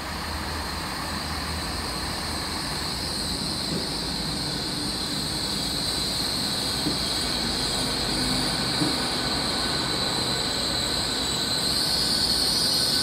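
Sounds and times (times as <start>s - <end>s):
train rumble passing: 0.0s - 13.0s
high wheel squeal: 0.8s - 13.0s.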